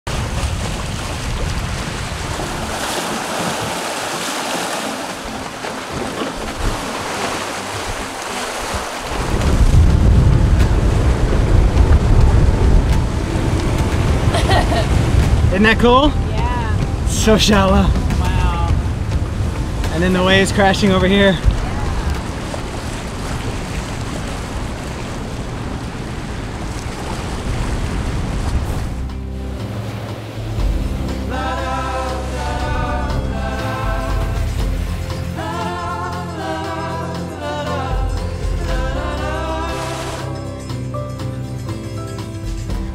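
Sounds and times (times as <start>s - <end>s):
surf breaking on reef: 0.0s - 40.6s
sea waves washing: 0.0s - 42.9s
wind on microphone: 0.1s - 4.3s, 5.3s - 29.1s.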